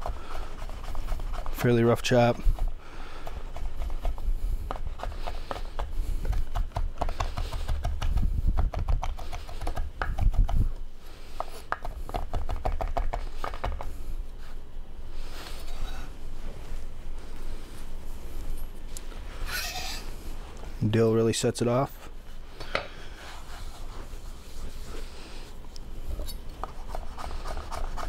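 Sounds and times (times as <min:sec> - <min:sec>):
knife chopping on wooden board: 0:04.7 - 0:10.4.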